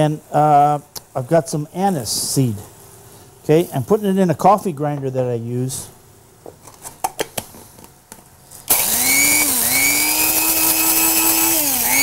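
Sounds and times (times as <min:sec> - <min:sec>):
coffee grinder motor whining: 0:08.7 - 0:12.0.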